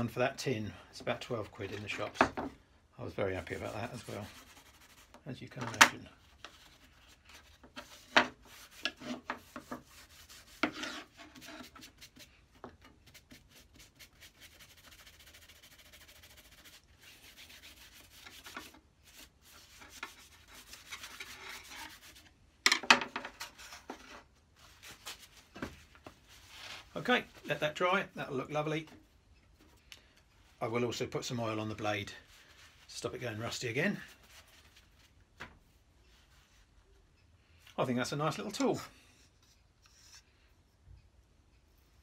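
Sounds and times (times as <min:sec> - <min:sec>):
cloth rubbing on wood: 0:03.4 - 0:05.2, 0:06.3 - 0:12.3, 0:13.0 - 0:22.3.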